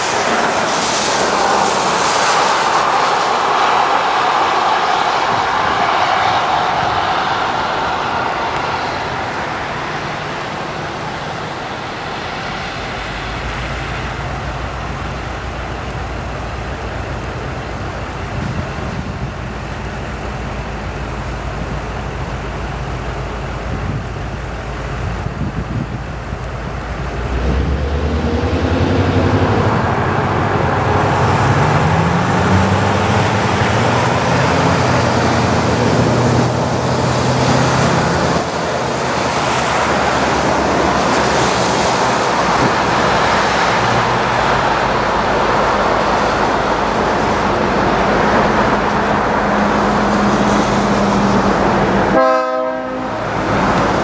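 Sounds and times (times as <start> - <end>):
diesel locomotive engine running: 0.0 - 54.0.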